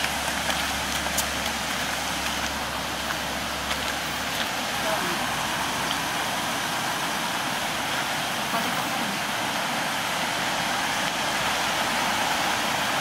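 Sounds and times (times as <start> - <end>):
mountain stream rushing: 0.0 - 13.0.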